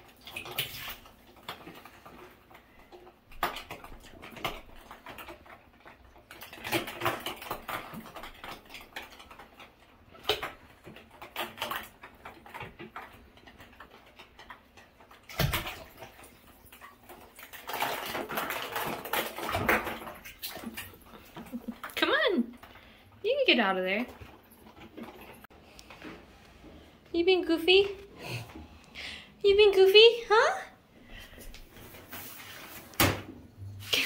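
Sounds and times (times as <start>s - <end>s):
water sloshing: 0.0s - 26.0s.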